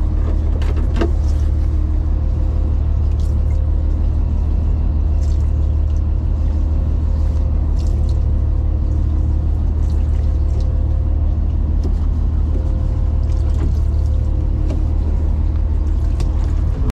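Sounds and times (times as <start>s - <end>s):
boat engine rumbling: 0.0s - 16.9s.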